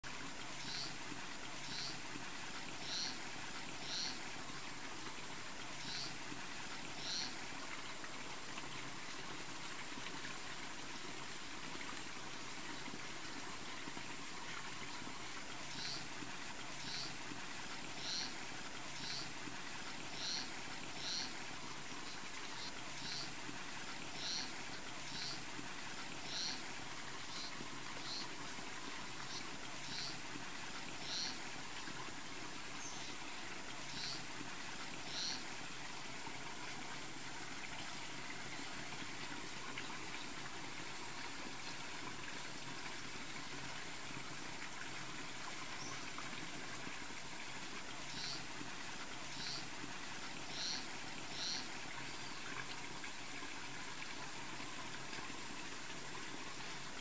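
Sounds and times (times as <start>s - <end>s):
insect drone: 0.4s - 4.4s, 5.5s - 7.6s, 15.3s - 32.2s, 32.8s - 35.9s, 48.1s - 52.4s.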